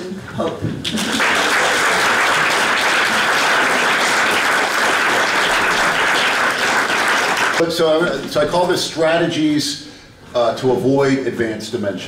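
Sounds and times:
audience applauding: 0.8 - 7.6.

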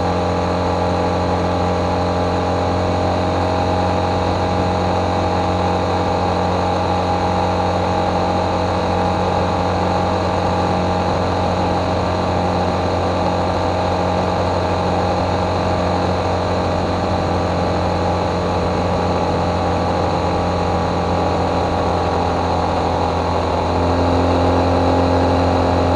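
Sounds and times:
motorcycle engine cruising: 0.0 - 25.9.

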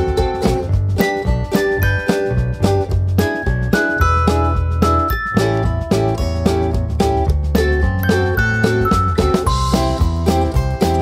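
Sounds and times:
plucked-string tune: 0.0 - 11.0
steady bass line: 0.0 - 11.0.

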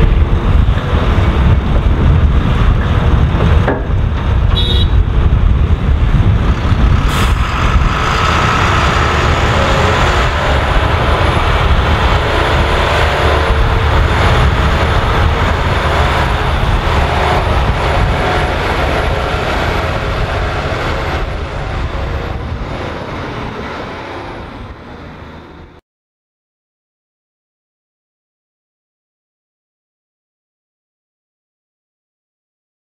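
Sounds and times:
heavy diesel engines running: 0.0 - 25.8.

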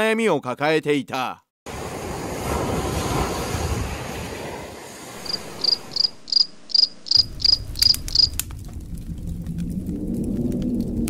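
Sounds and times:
steady rushing noise: 1.7 - 11.0
cricket chirping: 5.2 - 8.4.

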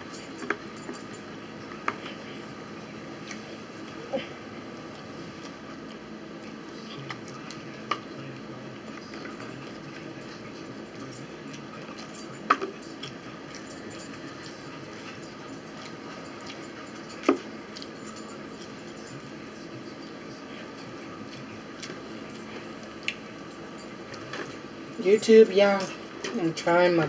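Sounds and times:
steady background hum: 0.0 - 27.0
forks clinking on plates: 11.0 - 19.4.

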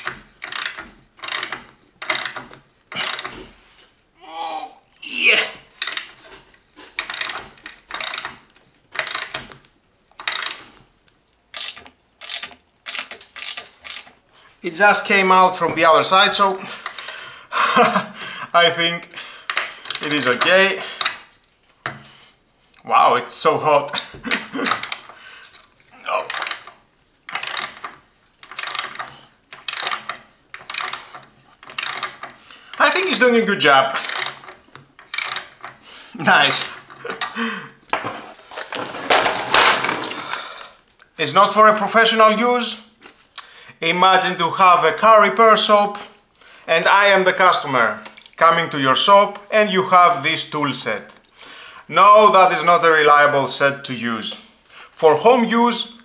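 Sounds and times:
ratchet wrench clicking: 0.0 - 3.3, 5.8 - 6.2, 7.0 - 8.4, 9.0 - 9.4, 10.2 - 10.7, 11.5 - 14.2, 19.5 - 21.1, 26.3 - 33.2, 34.0 - 35.7.

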